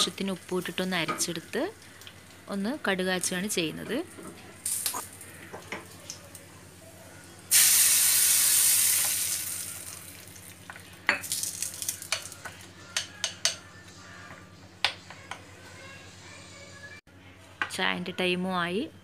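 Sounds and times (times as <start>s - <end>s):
hot oil sizzling: 7.5s - 12.4s.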